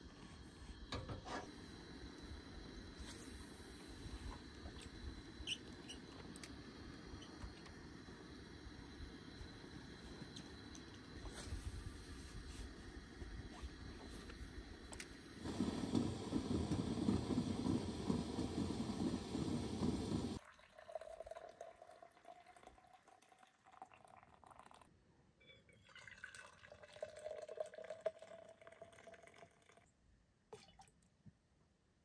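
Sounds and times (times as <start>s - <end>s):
coffee pouring into a cup: 15.4s - 24.9s, 25.7s - 29.9s.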